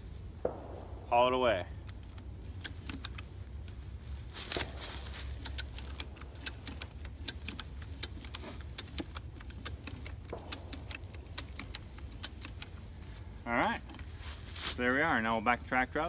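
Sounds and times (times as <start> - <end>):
ratchet strap pawl clicking: 1.8 - 3.9, 4.6 - 13.2.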